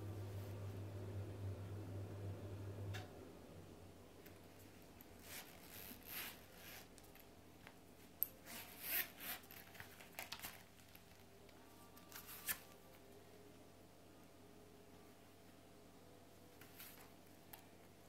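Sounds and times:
metal zipper pulled open: 0:05.2 - 0:07.0, 0:08.4 - 0:10.6.

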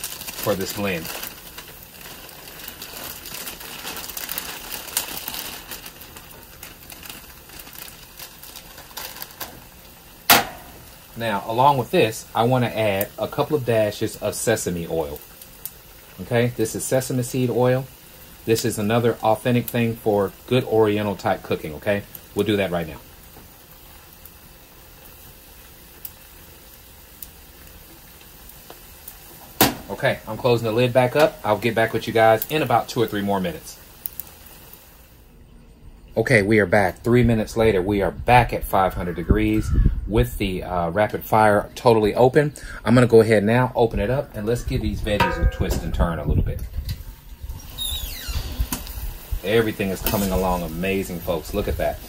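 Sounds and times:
plastic bag crinkling: 0:00.0 - 0:13.9
vegetables sizzling in a wok: 0:00.0 - 0:35.4, 0:45.0 - 0:52.0
sharp knock: 0:10.3 - 0:10.7.

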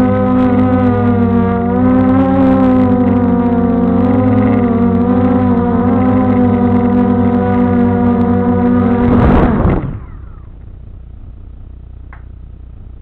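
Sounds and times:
drone motors whining: 0:00.0 - 0:12.3
loud rush of noise: 0:06.4 - 0:10.6.

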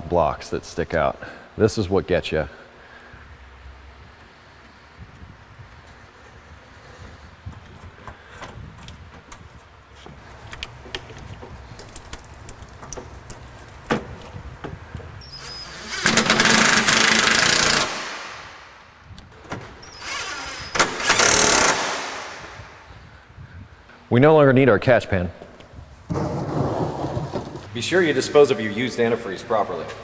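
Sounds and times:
impact wrench hammering: 0:15.9 - 0:18.7, 0:20.4 - 0:22.6.

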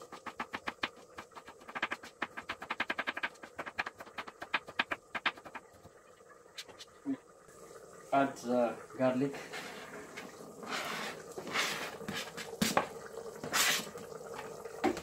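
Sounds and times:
knife chopping on wooden board: 0:00.0 - 0:05.6.

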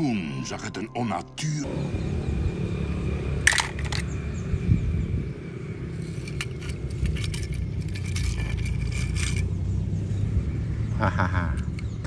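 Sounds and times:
low rumble: 0:00.0 - 0:11.6
toy cars clinking together: 0:03.5 - 0:04.1, 0:06.0 - 0:09.5.

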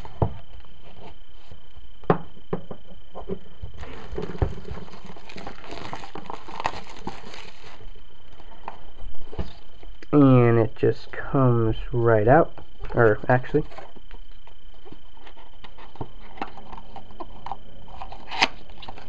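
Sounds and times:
plastic crinkling: 0:03.8 - 0:10.0.

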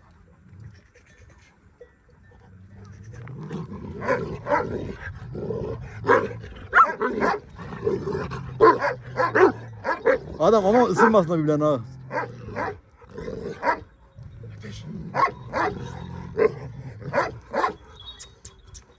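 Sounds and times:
dog growling: 0:02.7 - 0:17.8
dogs barking loudly: 0:03.9 - 0:14.0, 0:15.0 - 0:18.0.

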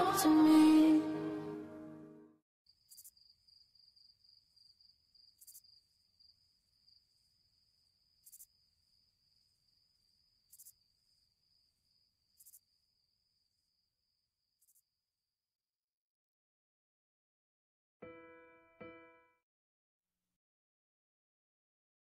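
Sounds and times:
short high insect chirp: 0:02.7 - 0:05.8, 0:09.4 - 0:11.0
cricket trill: 0:02.7 - 0:14.9.

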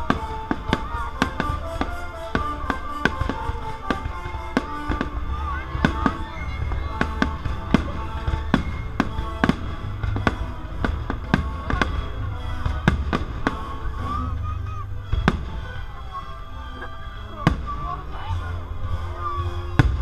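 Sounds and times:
orchestral music: 0:00.0 - 0:20.0.

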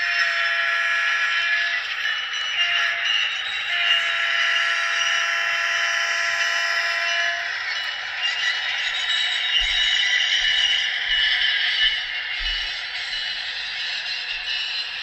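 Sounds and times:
model train diesel engine sound: 0:00.0 - 0:15.0.

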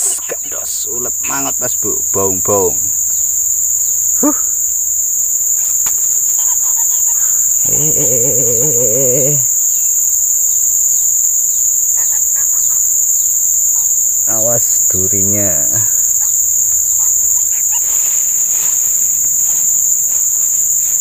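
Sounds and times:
insect chorus drone: 0:00.0 - 0:21.0
man humming: 0:04.2 - 0:04.6, 0:07.5 - 0:09.6, 0:14.3 - 0:16.3.

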